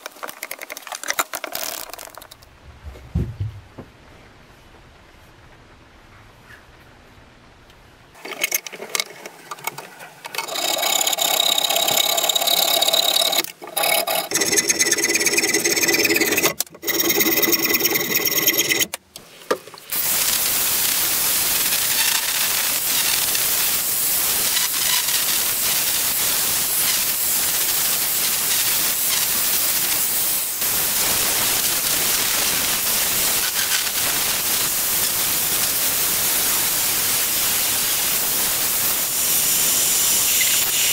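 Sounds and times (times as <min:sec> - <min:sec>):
angle grinder sanding wood: 0:10.4 - 0:18.9.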